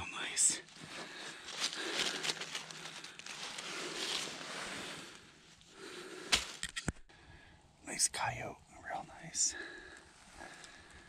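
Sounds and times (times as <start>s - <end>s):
dry leaves crackling and rustling: 0.8s - 5.1s.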